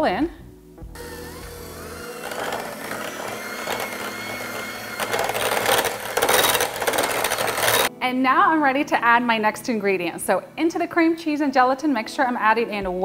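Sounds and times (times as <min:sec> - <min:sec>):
electric hand mixer running: 0:01.0 - 0:07.9.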